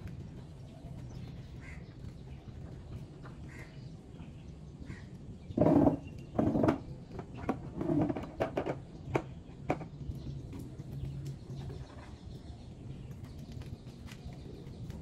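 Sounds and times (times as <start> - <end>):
plastic bucket knocking and scraping: 5.5 - 10.0.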